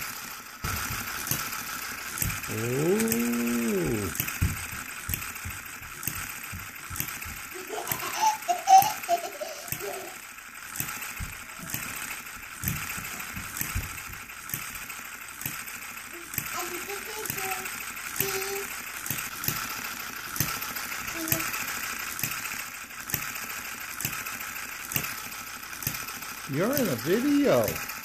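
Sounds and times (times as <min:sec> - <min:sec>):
girl laughing: 0:02.5 - 0:04.1, 0:07.5 - 0:10.2
rising and falling hum: 0:02.5 - 0:04.2.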